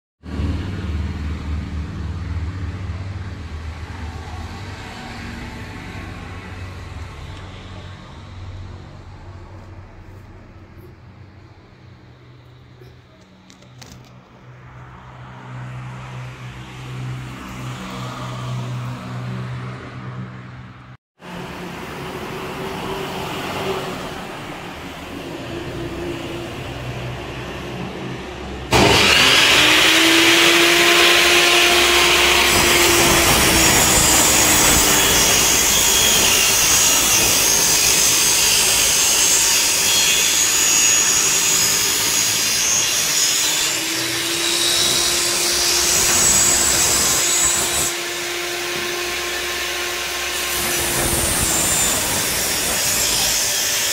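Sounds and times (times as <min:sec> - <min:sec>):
table saw cutting board: 0:28.7 - 0:53.9.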